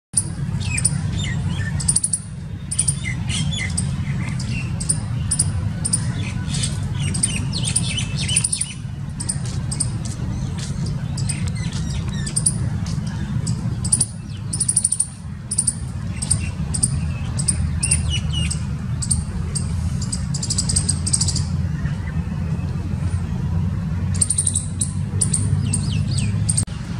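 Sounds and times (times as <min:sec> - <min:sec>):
squirrel chirping: 0:00.2 - 0:10.0, 0:10.6 - 0:12.7, 0:13.3 - 0:21.5, 0:24.1 - 0:26.7
steady low rumble: 0:00.2 - 0:26.9.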